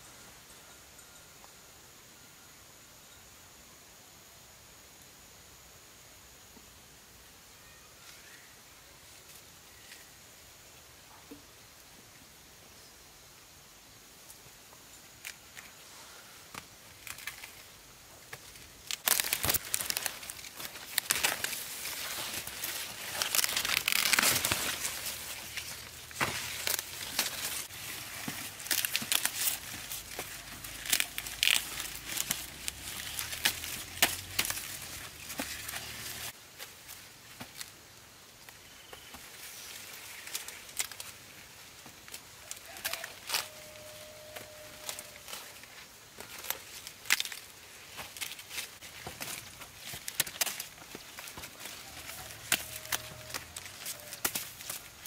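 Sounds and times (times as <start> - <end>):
dry corn leaves rustling: 15.0 - 55.0
corn ears snapping off stalks: 18.3 - 36.7, 42.0 - 45.6, 46.2 - 55.0.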